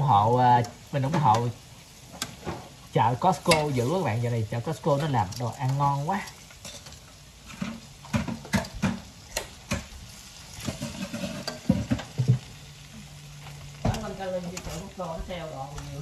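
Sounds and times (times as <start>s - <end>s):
cutlets sizzling in hot oil: 0.0s - 16.0s
metal tongs clicking and scraping: 3.5s - 3.8s, 5.0s - 7.2s.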